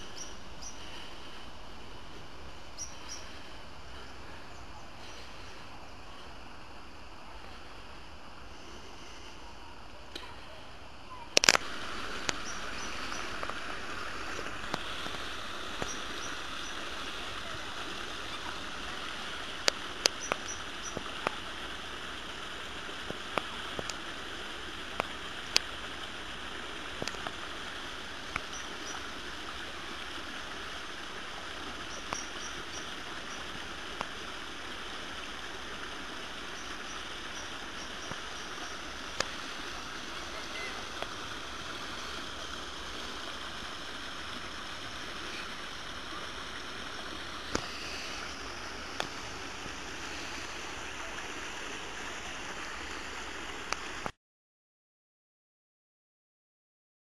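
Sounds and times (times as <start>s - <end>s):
stream water rushing: 0.0s - 54.1s
sharp clicks: 11.3s - 11.6s.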